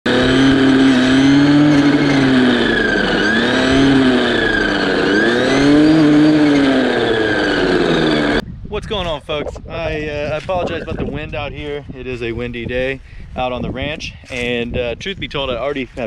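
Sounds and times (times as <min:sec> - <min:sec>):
string trimmer engine at high revs: 0:00.0 - 0:08.4.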